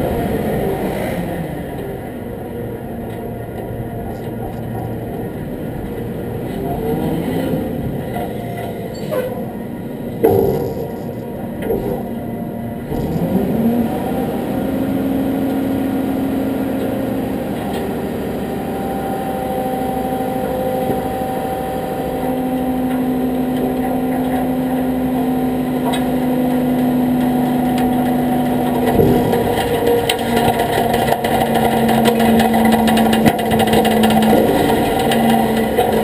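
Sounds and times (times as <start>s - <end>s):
truck engine idling: 7.8s - 13.2s.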